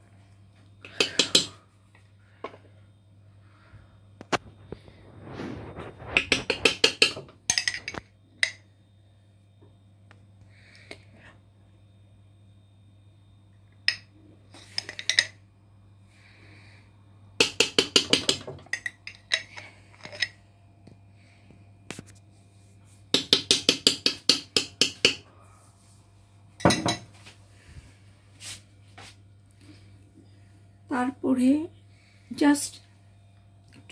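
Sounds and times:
metal spoon clinking on dish: 7.5 - 8.6.

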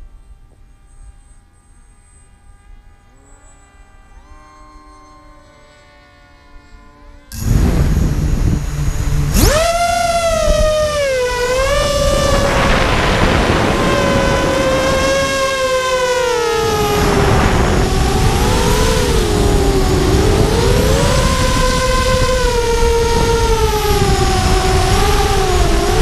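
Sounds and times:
drone motors whining: 0.0 - 26.0
wind rush: 7.3 - 26.0.

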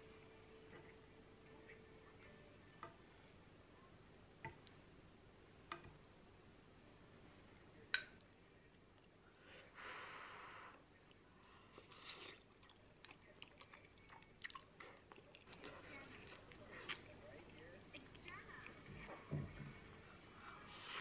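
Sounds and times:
chewing: 11.0 - 19.1.

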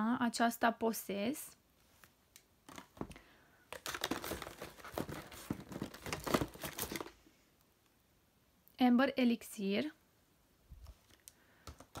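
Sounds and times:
packaging crinkling and rustling: 2.7 - 7.2.

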